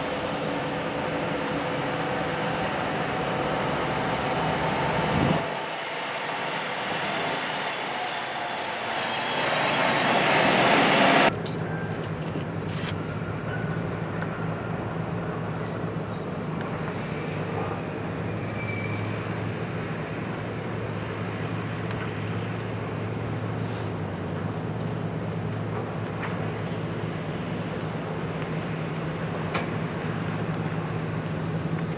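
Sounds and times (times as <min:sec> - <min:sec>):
loud rush of noise: 0:00.0 - 0:11.3
low engine hum: 0:00.0 - 0:31.9.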